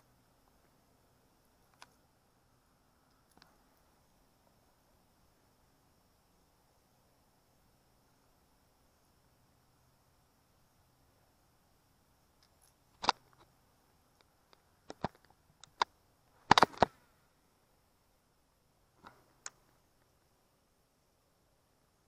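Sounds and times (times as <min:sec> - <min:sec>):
small hard objects clicking: 0:14.2 - 0:15.9.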